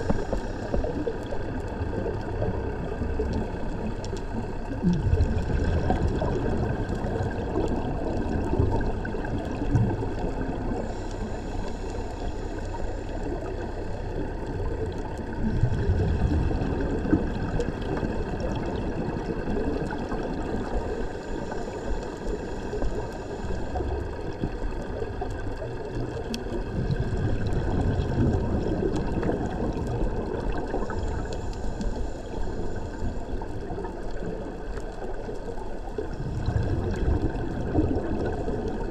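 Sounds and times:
regulator inhale hiss: 0.0 - 1.6, 10.6 - 15.3, 20.5 - 24.8, 30.7 - 34.1
exhaled bubbles rumbling: 0.0 - 38.9
muffled underwater noise: 0.0 - 38.9.

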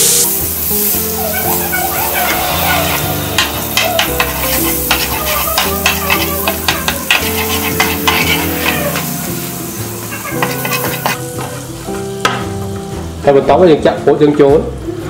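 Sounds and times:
butter sizzling: 0.0 - 13.2
spatula scraping metal wok: 0.6 - 12.2.

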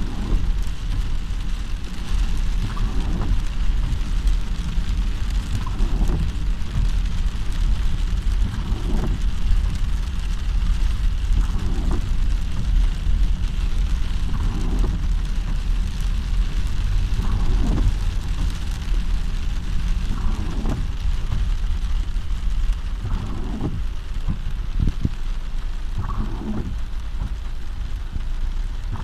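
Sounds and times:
deep steady rumble: 0.0 - 29.0
heavy rain on car windshield: 0.0 - 29.0
windshield wiper swish: 0.0 - 29.0.

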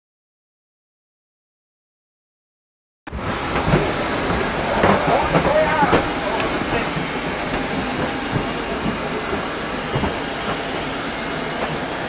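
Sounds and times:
jet airliner rushing hiss: 3.1 - 12.0.

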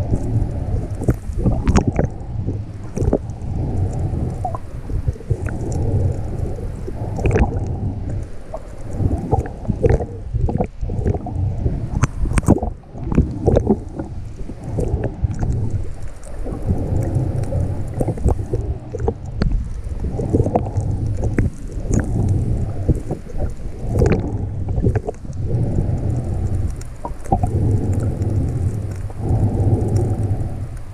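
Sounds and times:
muffled underwater rumble: 0.0 - 30.9.

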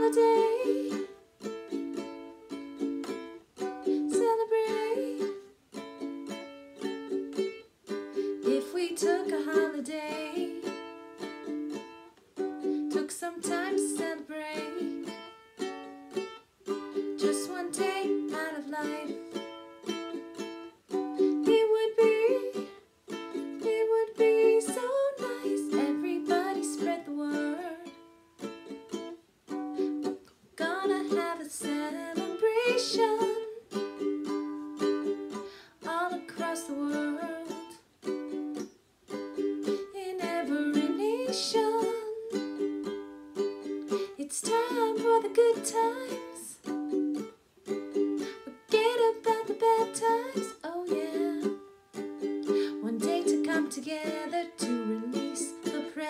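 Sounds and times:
woman singing: 0.0 - 1.2, 3.7 - 5.5, 8.2 - 10.8, 12.8 - 15.2, 17.0 - 19.4, 21.2 - 22.8, 23.4 - 28.0, 30.6 - 33.9, 35.3 - 37.8, 39.6 - 42.7, 44.1 - 46.7, 48.4 - 51.7, 52.4 - 56.0
ukulele strumming chords: 0.0 - 56.0.

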